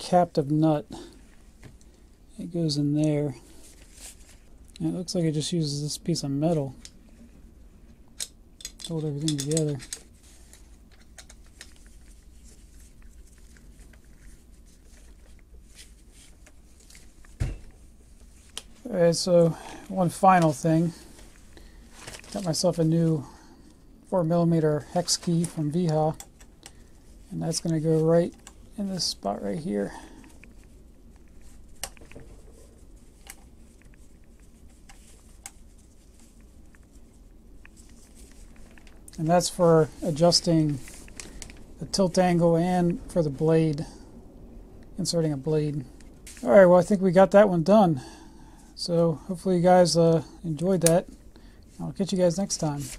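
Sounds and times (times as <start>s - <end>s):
metal parts shifting: 8.2s - 10.1s.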